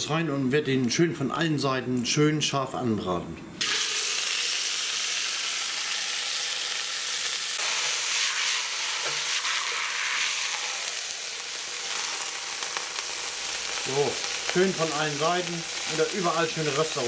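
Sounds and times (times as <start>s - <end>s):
meat sizzling on hot iron: 3.6s - 17.0s.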